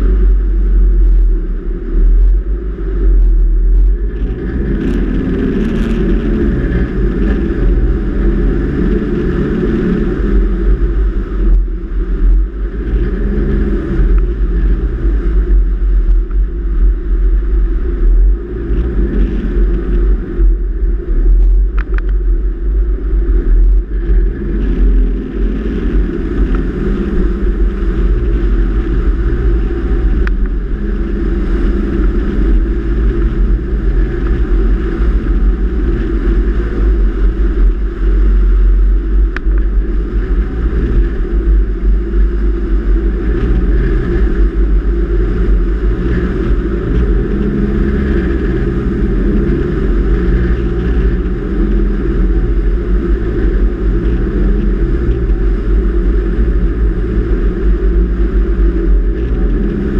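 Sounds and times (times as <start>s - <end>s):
engine and tyres rumbling: 0.0s - 59.9s.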